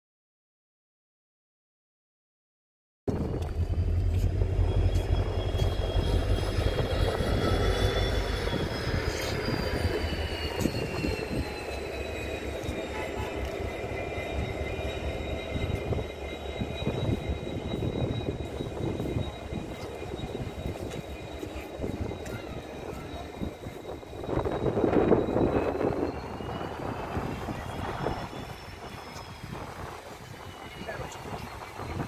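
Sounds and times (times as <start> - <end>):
high whining tones: 3.1 - 32.0
locomotive low rumble: 3.1 - 32.0.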